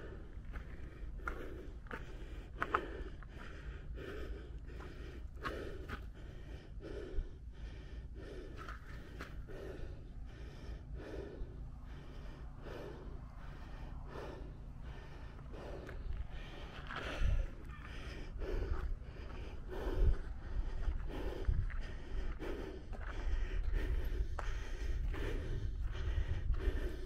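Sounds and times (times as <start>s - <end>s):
person breathing hard: 0.0s - 27.0s
footsteps on gravel: 0.5s - 3.5s, 15.7s - 19.9s.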